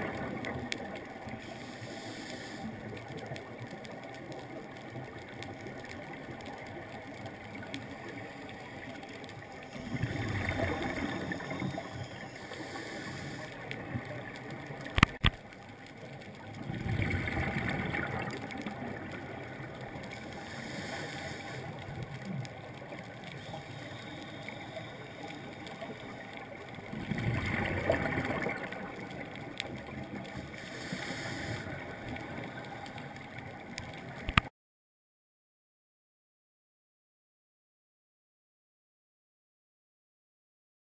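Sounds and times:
hiss of inhalation: 1.4s - 3.1s, 10.9s - 13.9s, 20.1s - 21.8s, 23.2s - 26.2s, 30.4s - 33.0s.

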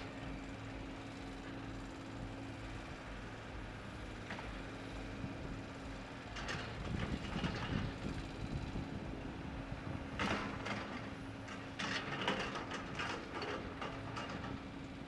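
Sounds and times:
excavator engine humming: 0.0s - 15.0s
excavator clattering: 6.2s - 8.7s, 9.8s - 15.0s.

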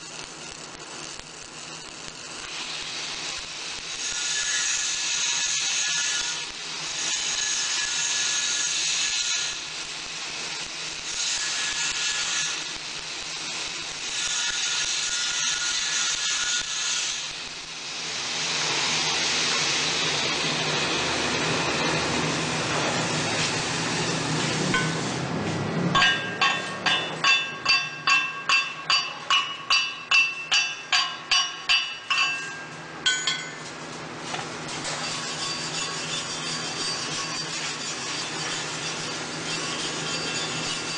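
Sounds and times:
welding arc crackling: 0.0s - 40.9s
chipping hammer on metal: 26.0s - 33.6s.

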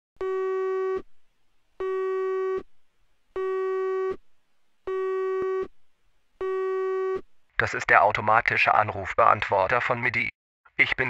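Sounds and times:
buzzy telephone beep: 0.2s - 1.0s, 1.8s - 2.6s, 3.4s - 4.2s, 4.9s - 5.7s, 6.4s - 7.2s.

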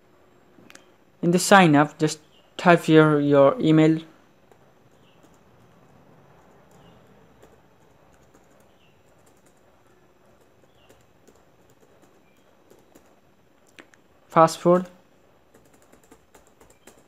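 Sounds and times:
computer keyboard clicking: 4.5s - 14.0s, 15.5s - 17.0s.

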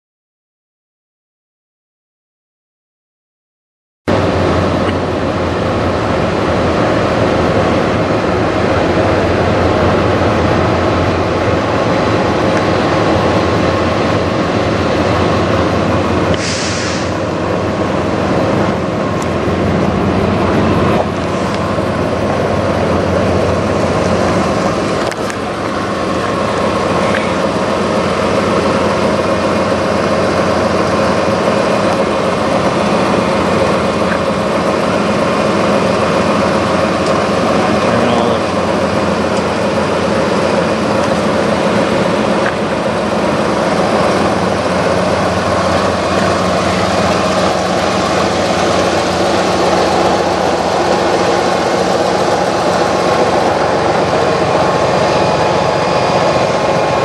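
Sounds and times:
diesel truck engine idling: 4.1s - 57.0s
air hiss: 16.4s - 17.2s.

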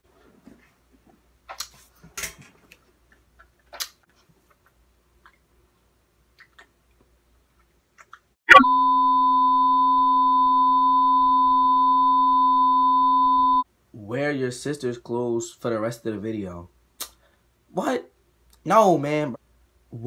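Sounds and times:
lower tone: 8.5s - 13.6s
test tone beep: 8.5s - 13.6s.

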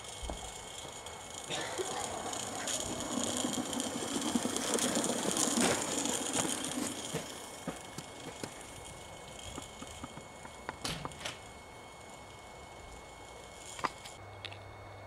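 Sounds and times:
model steam locomotive rattling: 0.0s - 14.2s.

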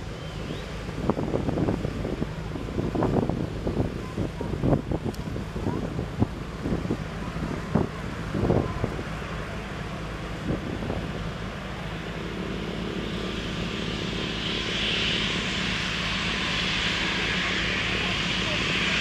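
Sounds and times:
jet engines running: 0.0s - 19.0s.

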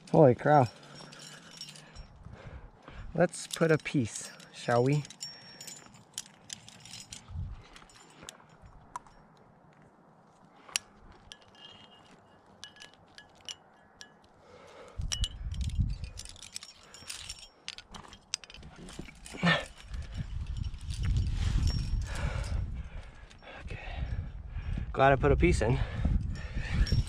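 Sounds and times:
carabiner clipping: 0.0s - 9.5s, 10.3s - 24.2s, 26.1s - 27.0s
metal climbing gear clinking: 0.0s - 27.0s.

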